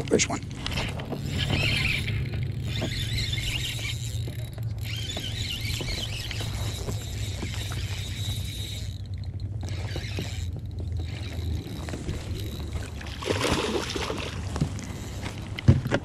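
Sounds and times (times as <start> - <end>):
steady low hum: 0.0 - 16.0
fish splashing at water surface: 12.8 - 14.6.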